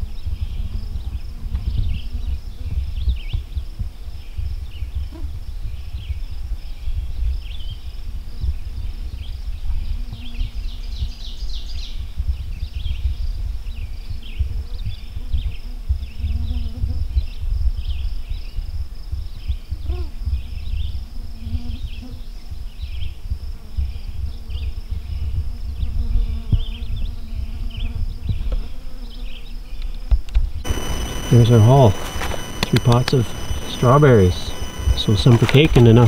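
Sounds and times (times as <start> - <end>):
birds and insects chirping: 0.0 - 16.2, 30.6 - 36.0.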